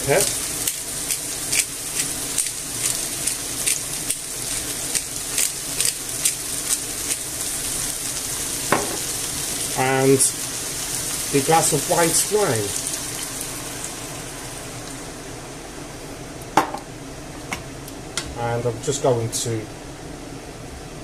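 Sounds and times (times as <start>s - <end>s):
food sizzling in a frying pan: 0.0s - 16.8s.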